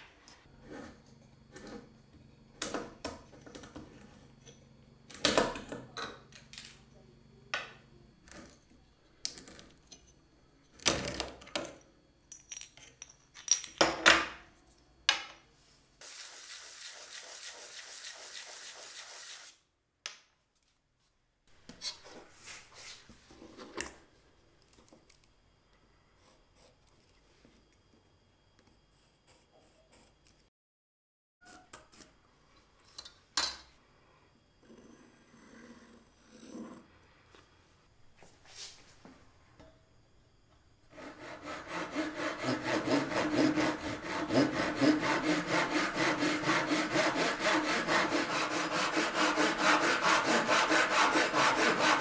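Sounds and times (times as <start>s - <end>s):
pipe cutter scraping: 40.9s - 52.0s.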